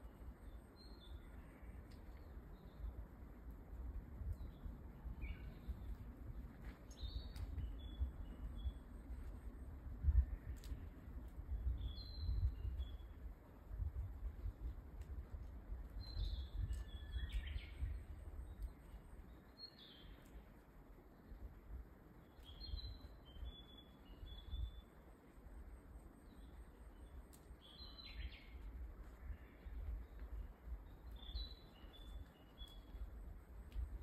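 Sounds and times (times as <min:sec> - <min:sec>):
steady low rumble: 0:00.0 - 0:23.6.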